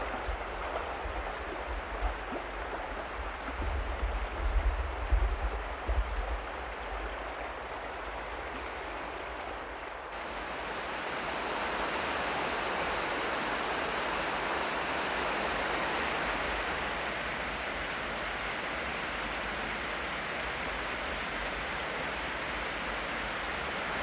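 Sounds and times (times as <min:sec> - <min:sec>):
river water rushing over stones: 0:06.5 - 0:24.0.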